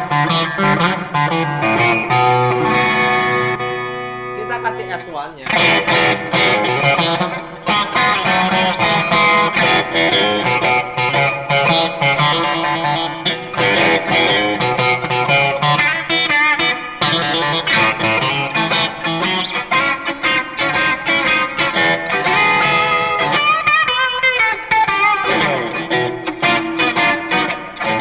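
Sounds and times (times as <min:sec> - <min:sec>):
electric guitar lead line: 0:00.0 - 0:28.0.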